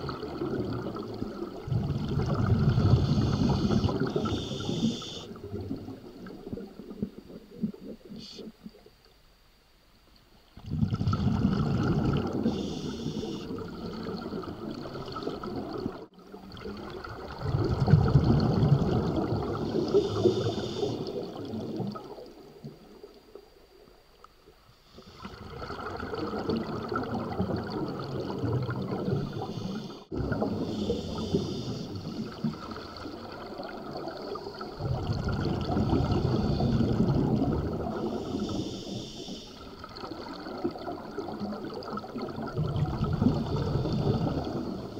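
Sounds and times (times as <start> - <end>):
bubbling exhaled air underwater: 0.0 - 8.9, 10.6 - 23.5, 24.9 - 44.9
regulator inhale hiss: 2.7 - 5.4, 8.1 - 8.5, 12.4 - 13.6, 19.7 - 21.4, 29.1 - 33.1, 36.0 - 37.1, 38.0 - 39.8.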